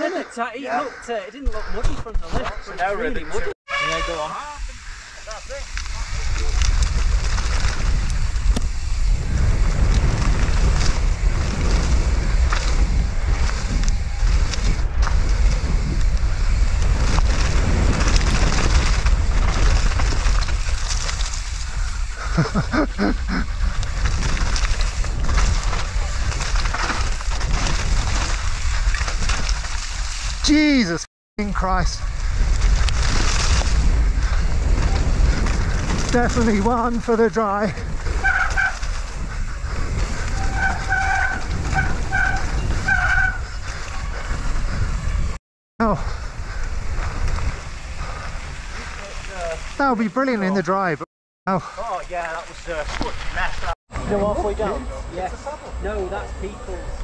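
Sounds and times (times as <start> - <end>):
wind buffeting microphone: 4.6 - 30.4, 31.4 - 49.8
bike rattling clicks: 5.6 - 30.4, 32.2 - 36.6
bike disc brakes squealing: 12.4 - 16.7, 38.0 - 45.4.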